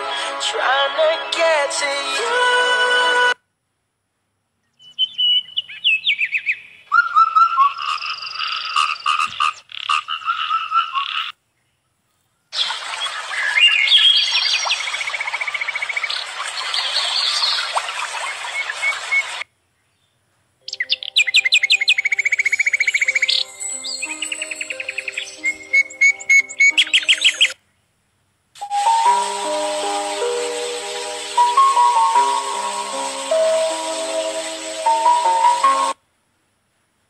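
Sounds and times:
birds chirping and trilling: 4.6 - 11.8, 12.6 - 27.6, 28.7 - 36.0
frogs croaking: 6.8 - 11.4, 12.6 - 19.4, 20.6 - 27.6, 28.6 - 36.0
running water: 12.6 - 19.4, 28.7 - 36.0.

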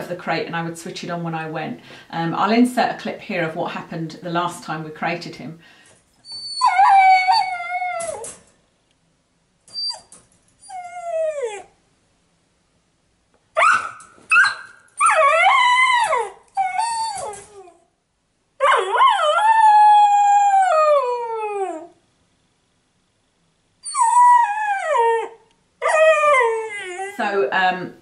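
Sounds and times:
puppy howling and whining: 6.2 - 8.4, 9.7 - 11.8, 13.6 - 17.9, 18.6 - 22.0, 23.8 - 27.2
puppy yelps: 6.2 - 8.4, 9.7 - 11.7, 13.6 - 17.8, 18.6 - 22.0, 23.8 - 27.2.

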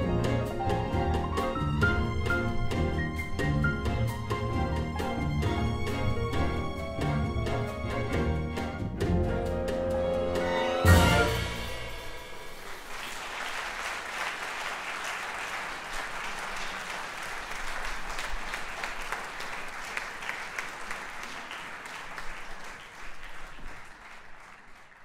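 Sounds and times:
audience applauding: 12.4 - 25.0.

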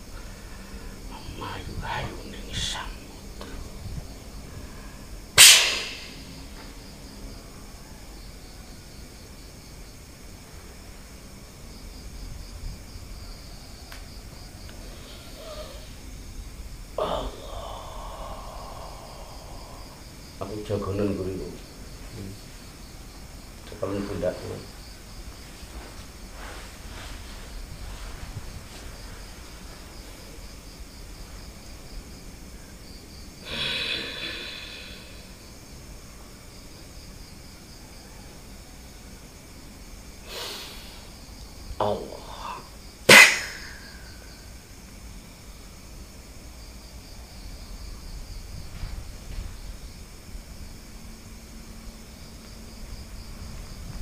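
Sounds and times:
person breathing loudly: 0.0 - 3.7, 4.4 - 5.3, 14.8 - 16.0, 17.0 - 20.2, 33.4 - 35.6, 40.2 - 41.2
crickets chirping: 0.0 - 54.0
man exhaling loudly: 17.0 - 20.0, 33.4 - 35.4.

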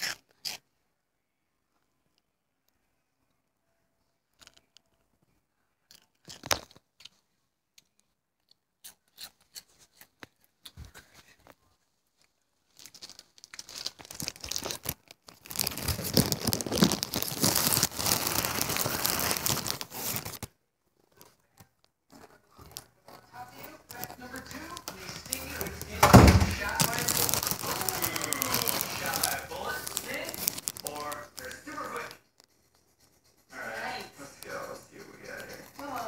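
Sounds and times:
rustling over microphone: 10.8 - 21.4.

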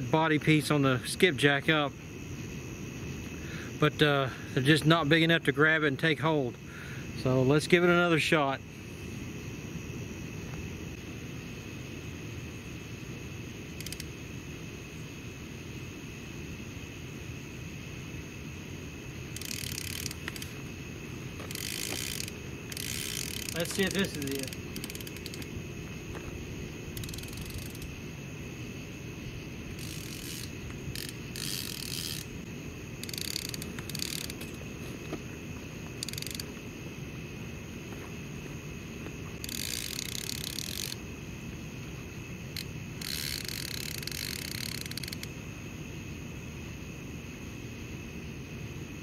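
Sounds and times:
fishing reel clicker ratcheting: 13.8 - 14.1, 19.4 - 20.5, 21.5 - 25.5, 27.0 - 27.9, 29.8 - 32.3, 33.0 - 34.4, 36.0 - 36.5, 39.4 - 41.0, 42.6 - 45.3.

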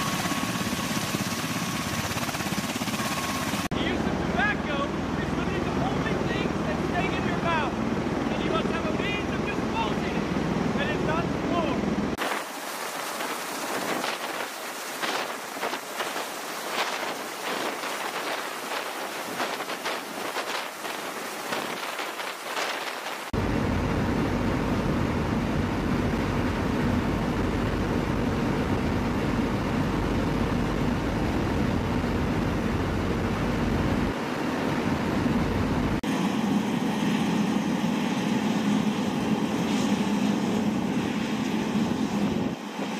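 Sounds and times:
engine hum: 0.0 - 42.9
rotor and turbine noise: 0.0 - 42.9
deep drone inside aircraft cabin: 23.4 - 37.4.

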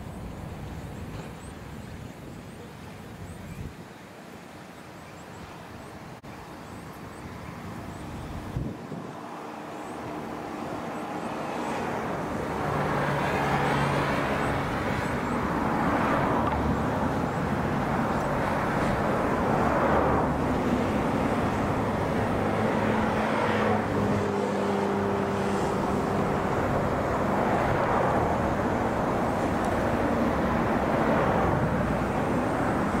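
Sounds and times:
motor traffic passing: 7.8 - 33.0.

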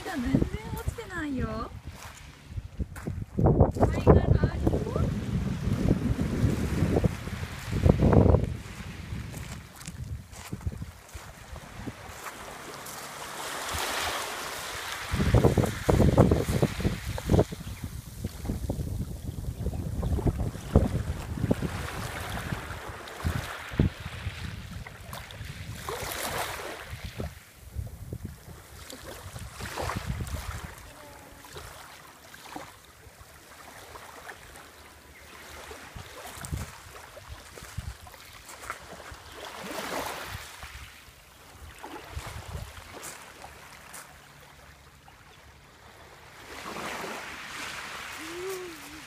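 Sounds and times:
wind rumble on microphone: 0.0 - 12.5, 14.6 - 31.7, 35.9 - 39.2, 41.6 - 43.2
ocean waves washing onto shore: 3.8 - 44.4, 45.6 - 49.0.

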